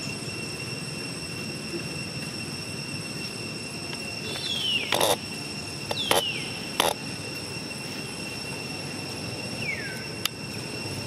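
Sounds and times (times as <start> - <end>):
high-pitched insect drone: 0.0 - 11.0
sharp rustling clicks: 4.3 - 5.2, 5.9 - 7.0.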